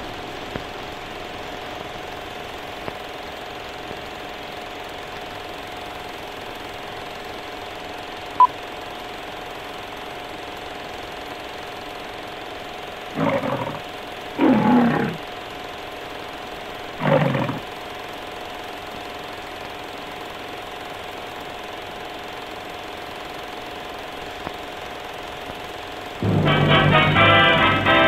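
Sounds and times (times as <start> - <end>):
film projector whirring: 0.0 - 26.4
faint hum: 13.1 - 15.5, 16.4 - 18.3, 25.5 - 28.0
lion roaring: 13.2 - 15.3, 17.0 - 17.7.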